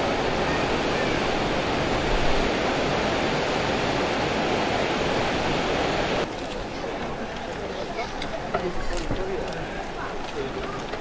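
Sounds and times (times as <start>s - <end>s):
water rushing over a weir: 0.0s - 6.3s.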